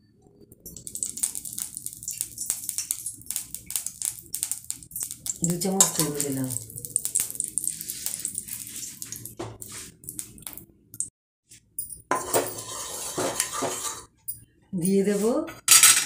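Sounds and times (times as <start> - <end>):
spatula scraping a wok: 12.2 - 14.1.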